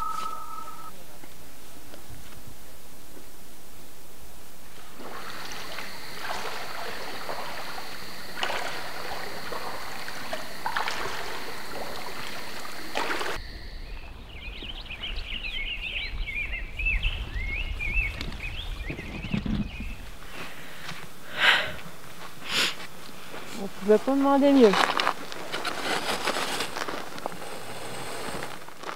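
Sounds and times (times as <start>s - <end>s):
low wind rumble: 0.9s - 26.0s
running water hiss: 3.0s - 14.4s, 20.0s - 28.9s
paddle splashing in water: 4.7s - 13.4s
high chirping calls: 12.7s - 20.1s.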